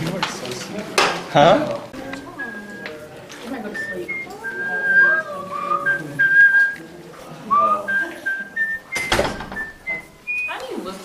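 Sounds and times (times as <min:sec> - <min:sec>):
background chatter: 0:00.0 - 0:11.0
person whistling a tune: 0:02.3 - 0:06.8, 0:07.5 - 0:10.6.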